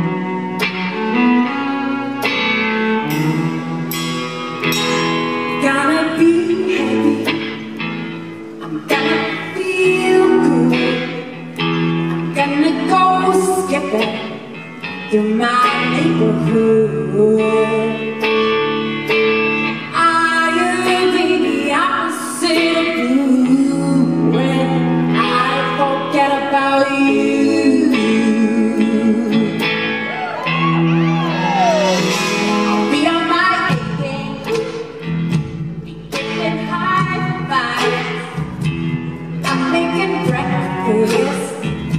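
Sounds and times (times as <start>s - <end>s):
electric guitar: 0.0s - 41.9s
woman singing: 5.3s - 18.7s, 19.6s - 30.1s, 31.8s - 35.1s, 36.2s - 41.9s.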